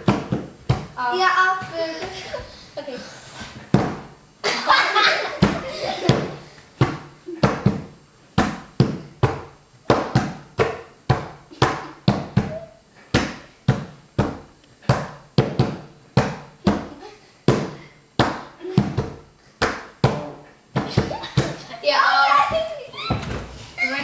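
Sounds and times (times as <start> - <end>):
hands slapping a tabletop: 0.0 - 0.9, 3.7 - 4.1, 5.4 - 12.5, 13.1 - 16.9, 17.5 - 21.6.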